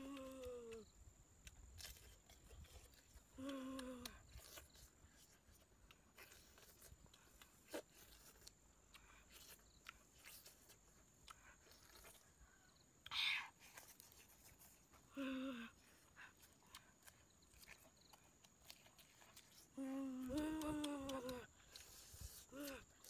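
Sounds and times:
person humming mmm: 0.0s - 0.9s, 2.9s - 4.6s, 15.0s - 16.1s, 18.8s - 23.0s
chewing and eating sounds: 0.0s - 23.0s.

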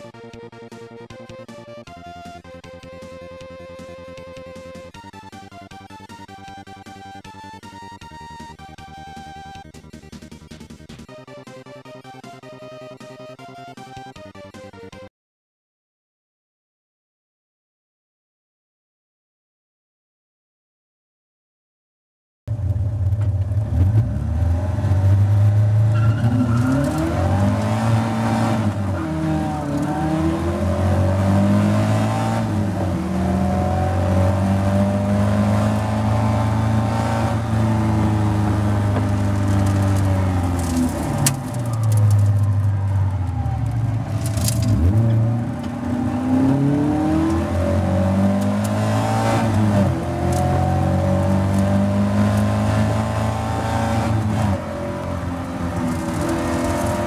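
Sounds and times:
race car engine at full throttle: 22.5s - 57.0s
other race cars passing: 23.6s - 57.0s.

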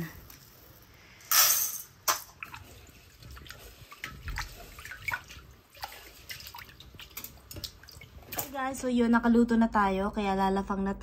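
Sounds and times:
water dripping: 2.3s - 8.6s
water sloshing: 2.3s - 8.6s.

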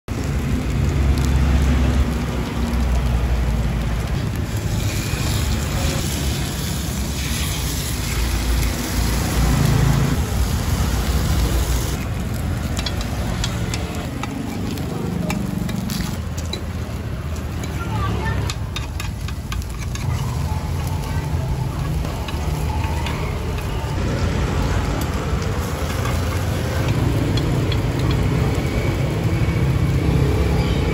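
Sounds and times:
oil and batter sizzling: 0.1s - 30.9s
sticks and spoon clicking on pan: 12.6s - 15.8s, 18.4s - 20.0s.

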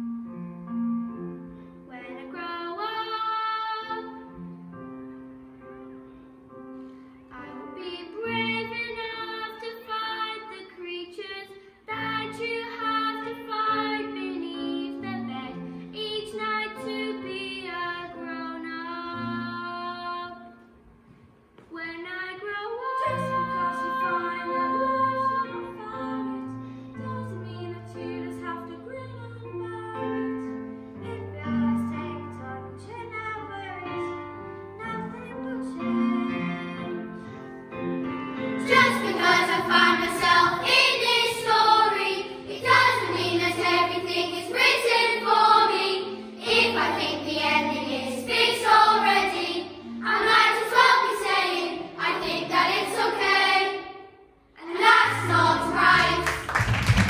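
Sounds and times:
children's choir singing: 38.4s - 56.6s.

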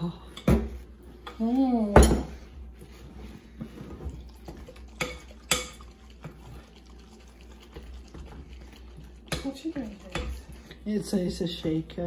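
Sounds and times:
spoon stirring in glass bowl: 4.4s - 11.3s.

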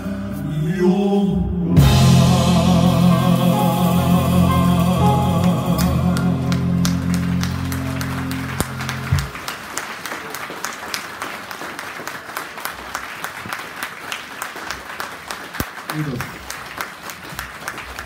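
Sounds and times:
audience applauding: 5.4s - 18.0s.

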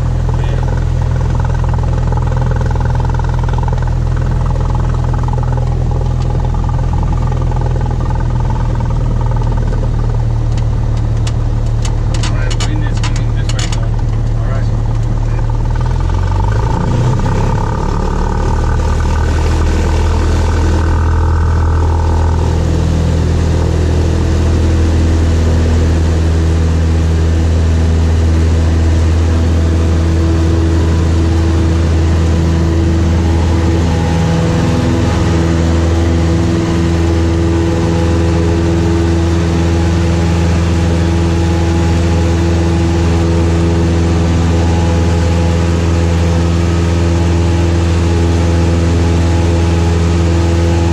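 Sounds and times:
airplane engine and propeller drone: 0.0s - 50.9s.

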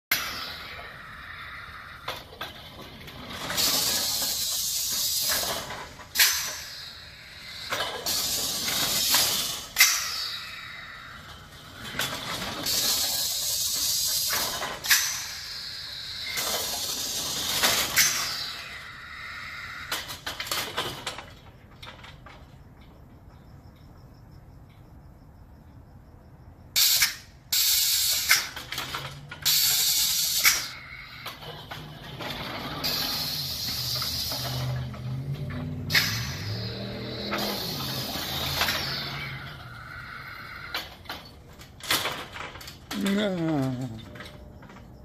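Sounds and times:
compressed air hissing: 3.4s - 11.5s
sharp clacks of cylinder: 7.5s - 10.4s, 26.8s - 31.5s.

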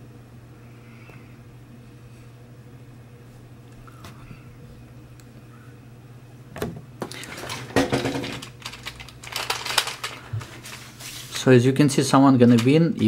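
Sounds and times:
hard plastic toy clattering: 7.3s - 10.3s.

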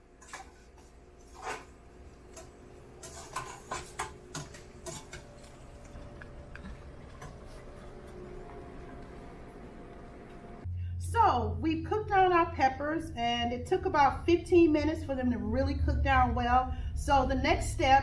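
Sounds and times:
faint steady hum: 0.0s - 18.0s
spoon scraping metal pot: 0.2s - 5.4s.

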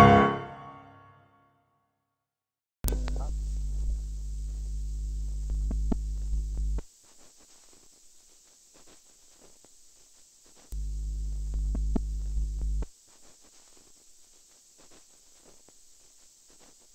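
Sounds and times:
sharp clicks: 2.8s - 4.0s
loud electrical hum: 2.8s - 7.0s, 10.3s - 13.0s
faint crackle: 2.8s - 16.9s.

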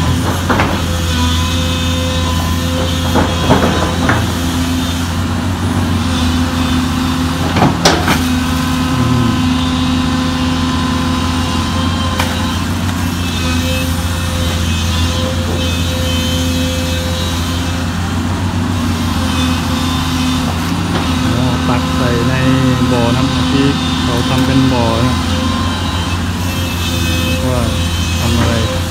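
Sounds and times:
excavator diesel engine running: 0.0s - 28.9s.

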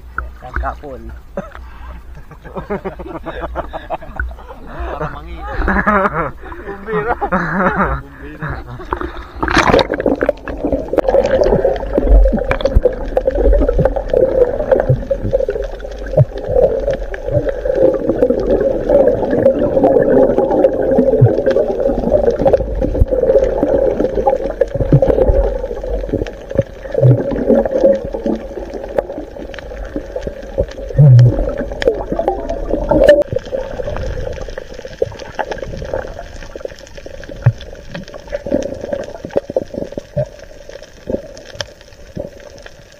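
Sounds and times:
muffled underwater churning: 0.0s - 42.9s
camera splashing into water: 9.4s - 11.7s.

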